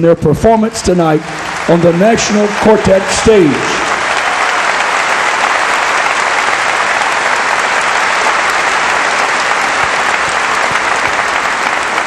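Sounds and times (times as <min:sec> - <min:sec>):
audience applauding: 0:00.5 - 0:12.0
audience cheering: 0:01.1 - 0:12.0.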